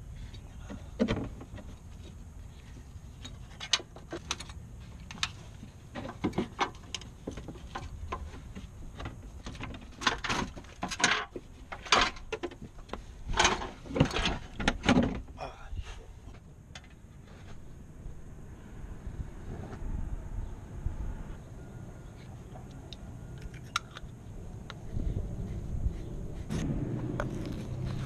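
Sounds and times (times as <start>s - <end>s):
low steady rumble: 15.3s - 28.0s.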